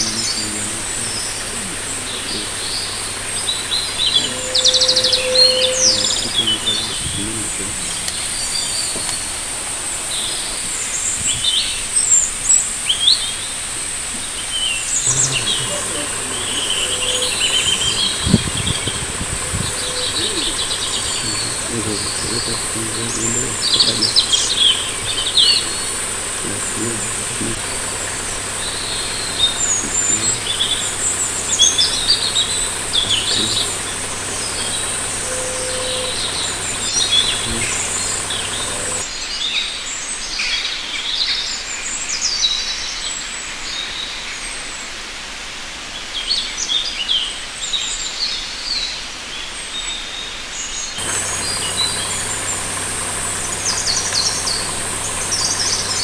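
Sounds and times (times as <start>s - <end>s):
high-pitched hum: 0.0s - 9.3s, 14.9s - 39.0s
birds chirping and trilling: 0.0s - 39.1s, 50.6s - 56.0s.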